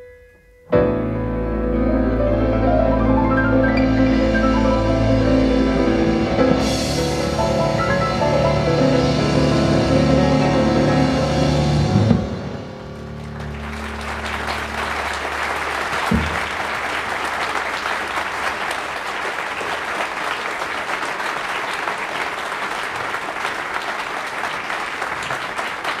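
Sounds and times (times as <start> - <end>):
audience applauding: 12.8 - 26.0.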